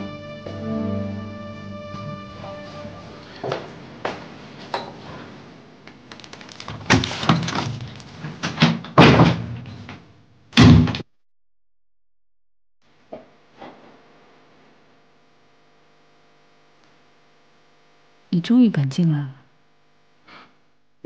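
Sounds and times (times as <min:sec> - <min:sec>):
door banging and slamming: 0:08.6 - 0:09.7.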